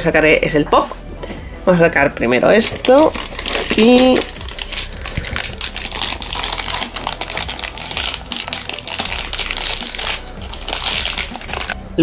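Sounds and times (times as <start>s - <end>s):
plastic bag crinkling: 2.6s - 11.8s.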